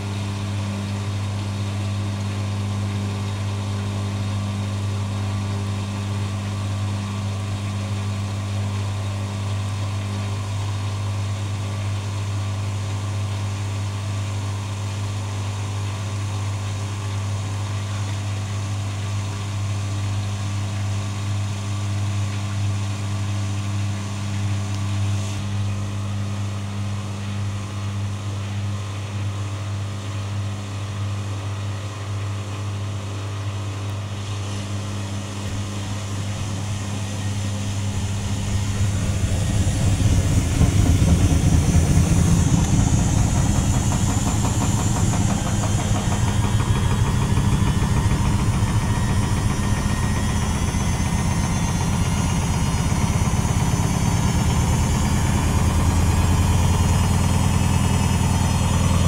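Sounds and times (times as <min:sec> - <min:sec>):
low motor hum: 0:00.0 - 0:59.0
washing machine drum turning: 0:36.2 - 0:59.0.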